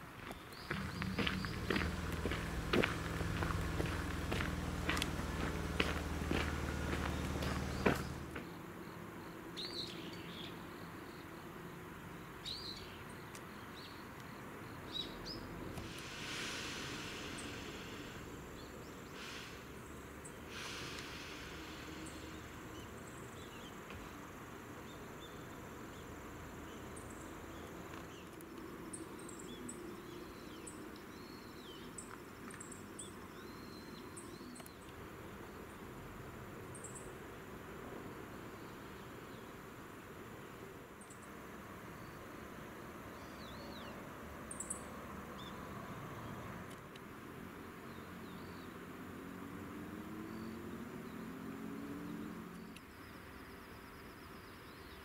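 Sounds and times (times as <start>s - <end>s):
small birds chirping: 0.2s - 11.7s, 12.3s - 24.2s, 24.8s - 35.8s.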